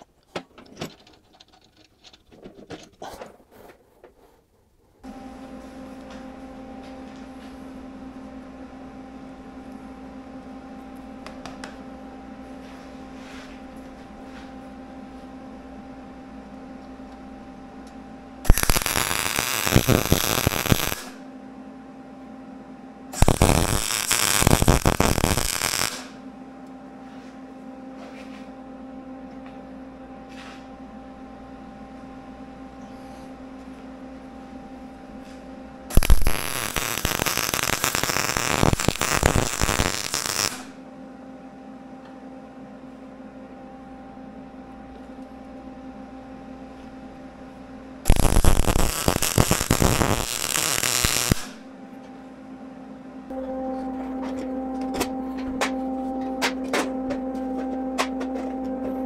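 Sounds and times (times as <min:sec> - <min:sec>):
electrical hum: 0:00.0 - 0:59.0
arc welding crackling sizzle: 0:18.4 - 0:21.2, 0:23.1 - 0:26.2, 0:35.2 - 0:40.8, 0:48.0 - 0:51.7.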